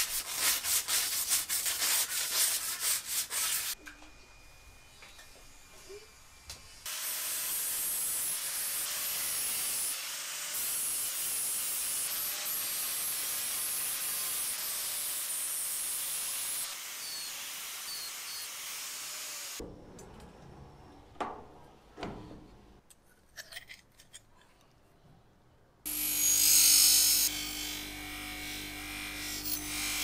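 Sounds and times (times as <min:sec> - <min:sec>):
abrasive tool grinding metal: 0:25.9 - 0:30.0.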